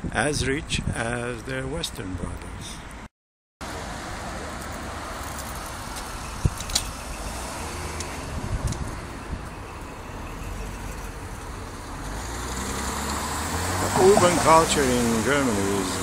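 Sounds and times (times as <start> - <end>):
cars passing: 3.6 - 16.0.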